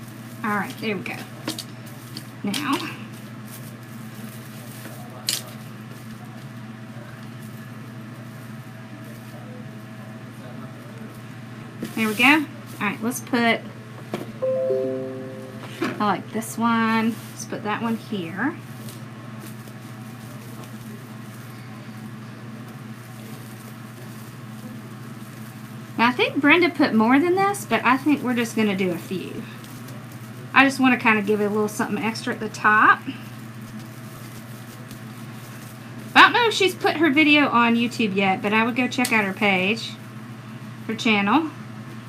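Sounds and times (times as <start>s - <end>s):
foil mesh and ribbon crinkling: 0.0s - 6.6s, 18.7s - 37.4s.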